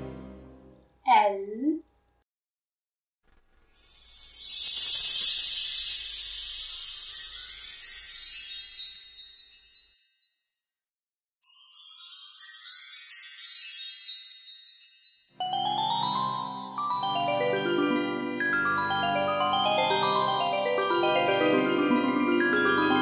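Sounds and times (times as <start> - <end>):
glittering magic sparkle chimes: 3.8 - 10.3, 11.4 - 17.4.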